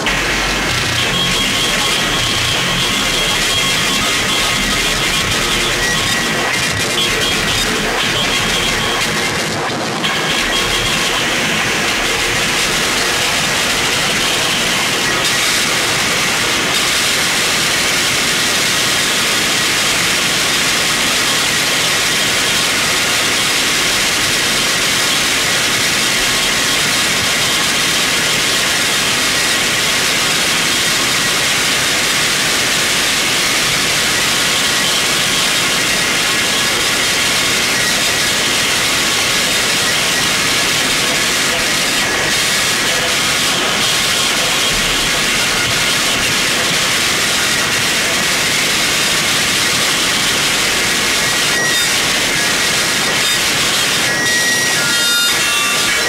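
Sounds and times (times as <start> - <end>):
faint high steady tones: 0.0 - 17.6
harsh distorted static noise: 0.0 - 56.0.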